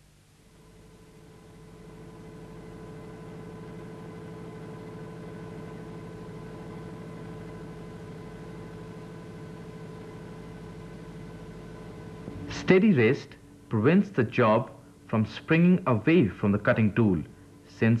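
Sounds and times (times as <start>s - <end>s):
lathe humming: 1.2s - 13.6s.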